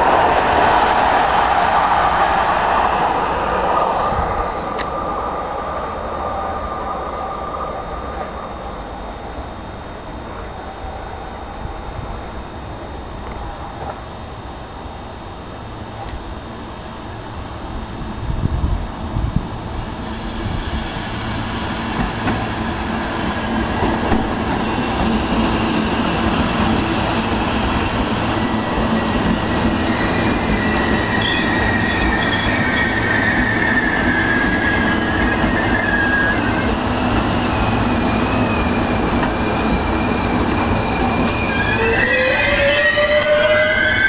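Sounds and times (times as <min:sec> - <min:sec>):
train rumbling: 0:00.0 - 0:44.0
wheel and brake squeals: 0:24.5 - 0:26.2, 0:26.9 - 0:44.0.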